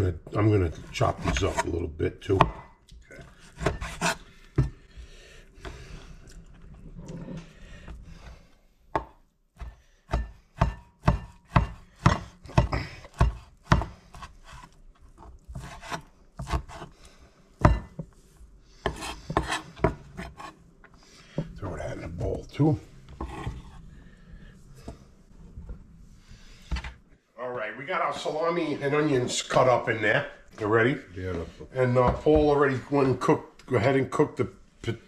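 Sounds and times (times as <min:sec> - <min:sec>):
knife scraping board: 0:03.2 - 0:04.3, 0:13.2 - 0:17.0, 0:18.8 - 0:20.6, 0:23.1 - 0:23.8
knife chopping on wooden board: 0:08.9 - 0:14.8, 0:15.5 - 0:16.9, 0:18.8 - 0:20.5.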